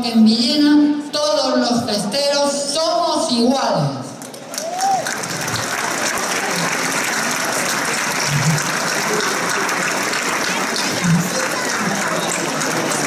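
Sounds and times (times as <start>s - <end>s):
crowd applauding: 4.2s - 13.0s.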